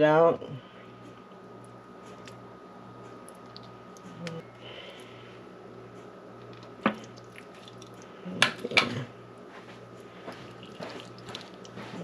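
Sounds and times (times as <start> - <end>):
faint steady hum: 0.0 - 12.0
wet squishing of raw meat: 3.2 - 4.0, 6.5 - 8.1, 10.4 - 12.0.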